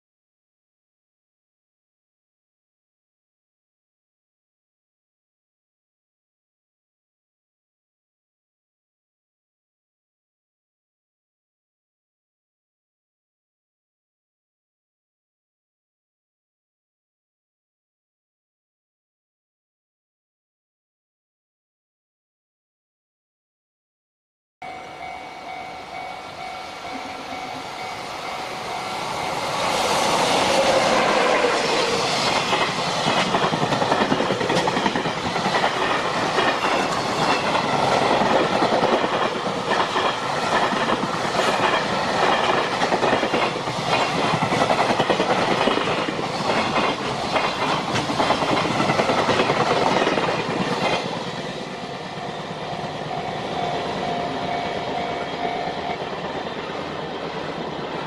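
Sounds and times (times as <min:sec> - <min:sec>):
freight train passing: 0:24.6 - 0:58.0.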